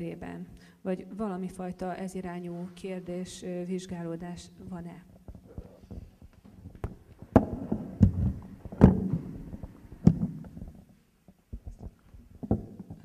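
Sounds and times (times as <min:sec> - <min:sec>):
microphone handling knocks: 0:05.2 - 0:10.8.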